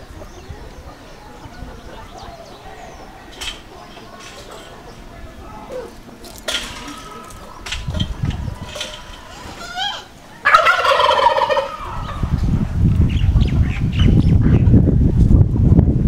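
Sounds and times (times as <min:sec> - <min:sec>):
wind rumbling on microphone: 0:00.0 - 0:16.0
turkey gobbling: 0:06.7 - 0:12.3.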